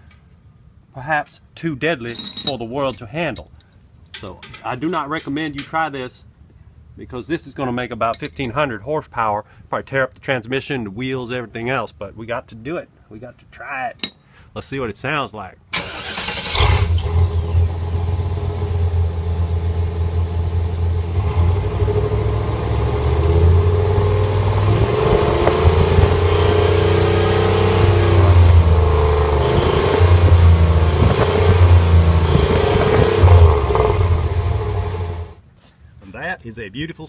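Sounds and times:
truck engine revving: 15.8s - 35.4s
wavering exhaust whistle: 21.2s - 35.3s.

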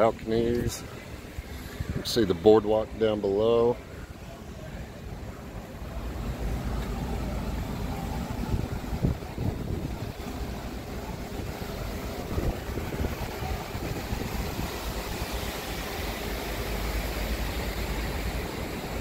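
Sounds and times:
wind blowing across microphone: 0.0s - 3.0s, 8.3s - 19.0s.

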